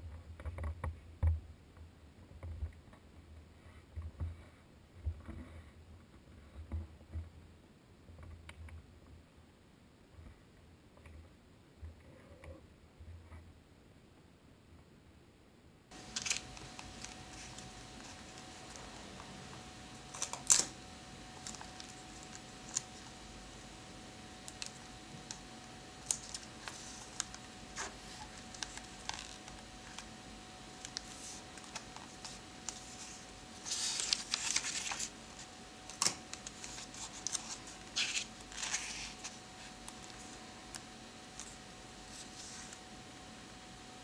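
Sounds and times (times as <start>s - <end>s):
fingers rubbing paper: 16.0s - 19.3s, 26.0s - 30.1s, 36.4s - 40.4s.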